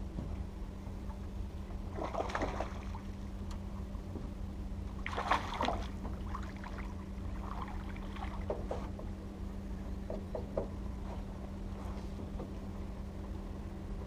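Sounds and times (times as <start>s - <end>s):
steady low hum: 0.0s - 14.0s
fish splashing at water surface: 1.9s - 3.1s, 5.0s - 8.5s.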